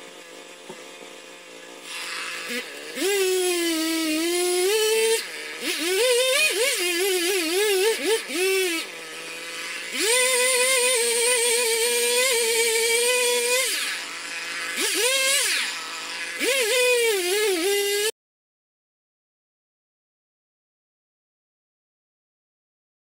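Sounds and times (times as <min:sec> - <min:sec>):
chainsaw cutting wood: 0:00.0 - 0:18.2.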